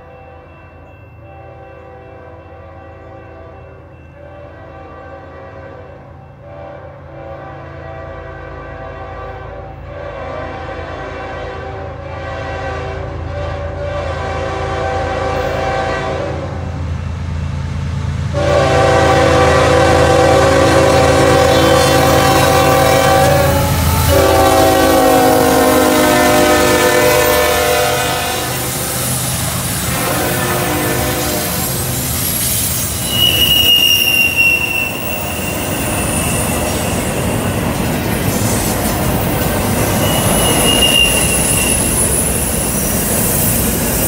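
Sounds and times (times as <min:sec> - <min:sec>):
locomotive air horn blasts: 0:04.2 - 0:16.7, 0:18.3 - 0:32.1, 0:33.0 - 0:37.2, 0:39.9 - 0:42.2.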